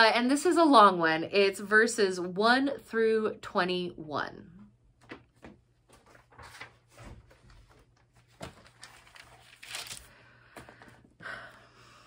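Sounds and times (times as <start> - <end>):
book pages rustling: 5.0 - 11.1.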